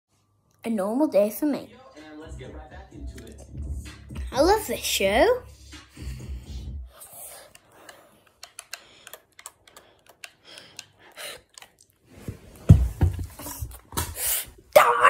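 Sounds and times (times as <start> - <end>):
sharp irregular clicks and taps: 7.4 - 11.7
heavy thumps: 12.5 - 14.2.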